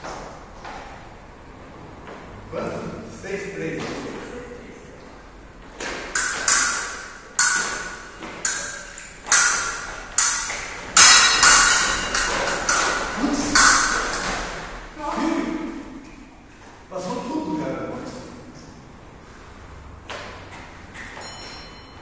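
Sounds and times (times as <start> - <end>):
fencing blades clashing: 5.7 - 15.0, 20.1 - 22.0.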